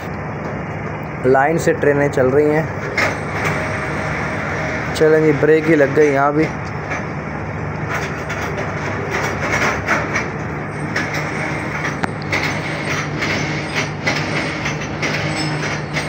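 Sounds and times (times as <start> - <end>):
train rumble: 0.0 - 16.0
wheels clicking on rails: 7.8 - 16.0.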